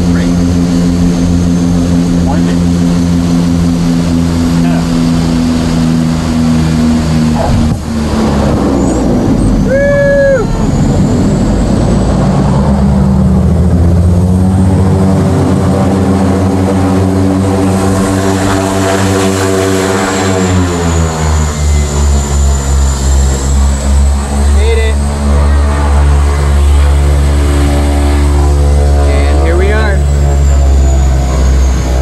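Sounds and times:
high whine: 0.0s - 32.0s
propeller plane engines: 0.0s - 32.0s.

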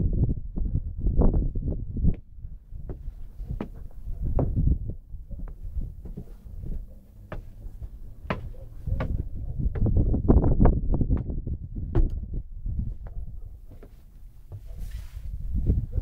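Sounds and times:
low rumble: 0.0s - 13.7s
footsteps on stone: 2.9s - 4.7s, 5.4s - 10.0s.

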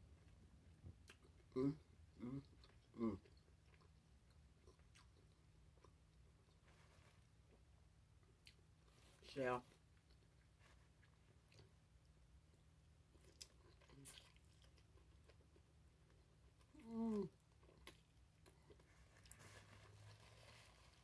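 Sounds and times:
person chewing: 0.2s - 9.1s, 9.9s - 21.0s
person humming mm: 1.5s - 3.3s, 16.7s - 17.4s.

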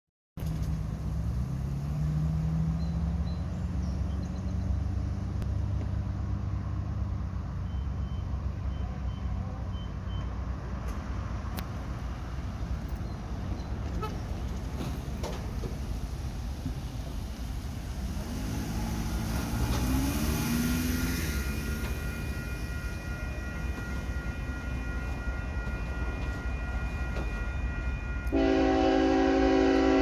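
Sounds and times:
cars passing: 0.4s - 30.0s
faint short high beeps: 7.6s - 10.4s.

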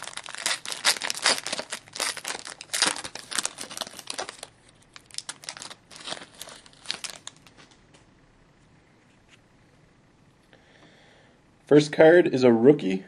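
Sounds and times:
foil wrapper tearing and crinkling: 0.0s - 7.5s
cards drawn from wrapper: 0.0s - 7.6s.

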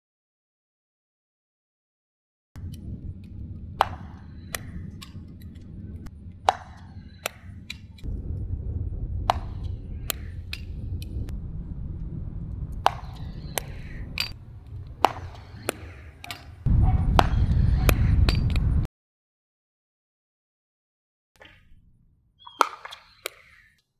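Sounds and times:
low rumbling noise: 2.6s - 18.9s
paddle hitting ball: 3.8s - 5.2s, 6.4s - 7.9s, 9.3s - 10.7s, 12.8s - 14.4s, 15.0s - 16.5s, 22.5s - 23.5s
ball bouncing on court: 12.7s - 14.4s, 17.1s - 18.6s.

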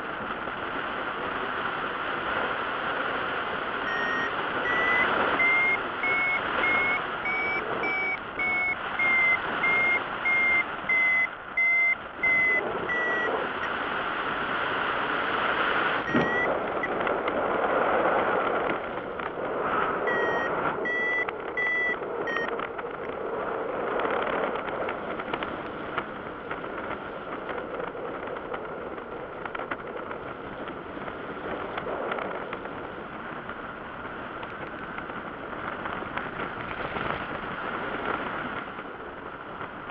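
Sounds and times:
wind rushing over microphone: 0.0s - 39.9s
variometer beeping: 3.8s - 13.7s, 16.0s - 17.1s, 20.0s - 22.7s.

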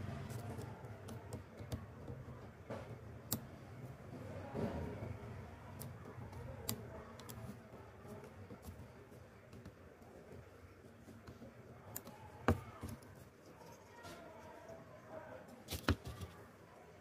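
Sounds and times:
metal tool clicking on plastic: 3.0s - 3.6s, 5.8s - 7.6s.

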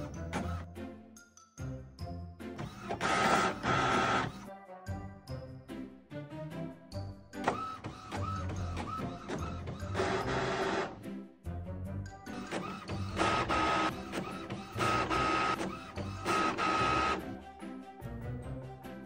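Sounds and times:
background music with steady beat: 0.0s - 19.0s
inkjet printer head passes: 7.4s - 11.0s, 12.4s - 17.2s.

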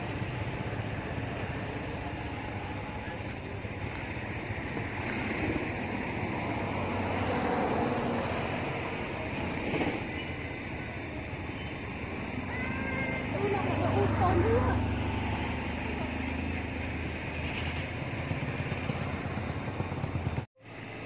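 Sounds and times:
faint high steady tone: 0.0s - 7.9s
rumbling hissing background noise: 0.0s - 17.8s.

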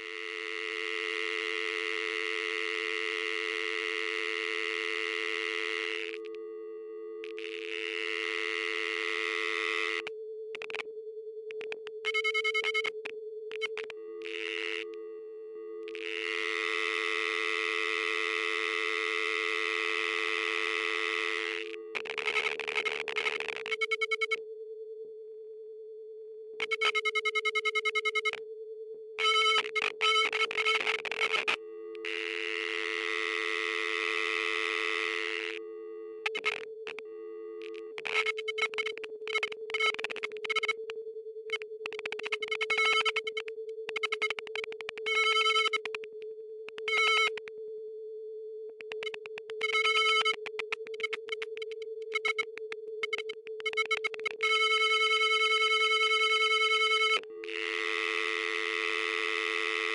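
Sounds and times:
clicks: 11.5s - 14.0s, 37.6s - 47.6s, 48.7s - 54.5s
rapidly pulsing electronic beeps: 11.6s - 13.9s, 26.6s - 28.4s, 29.2s - 31.5s, 37.6s - 40.9s, 41.5s - 47.5s, 48.8s - 58.6s.

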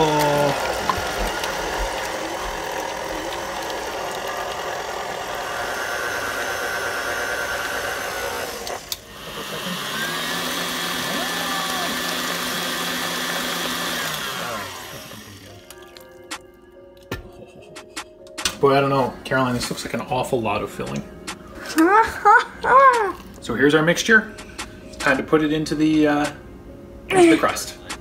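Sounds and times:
beater churning thick batter: 0.0s - 15.6s
stand mixer motor running: 0.0s - 15.6s.

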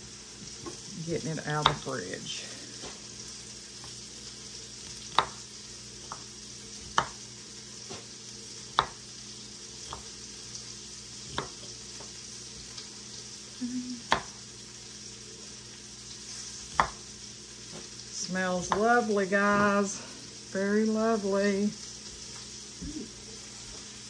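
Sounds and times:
vegetables sizzling in a pan: 0.0s - 24.0s
knife chopping on wooden board: 1.6s - 1.9s, 4.9s - 5.4s, 6.0s - 7.2s, 8.7s - 9.0s, 9.8s - 10.2s, 11.3s - 12.2s, 14.0s - 14.4s, 16.6s - 17.1s.

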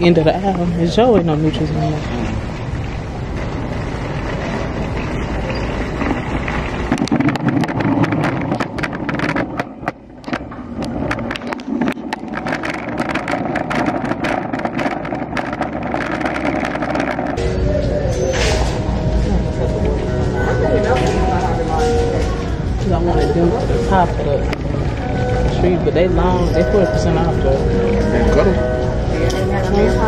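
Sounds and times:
steady rumble: 0.0s - 30.0s.

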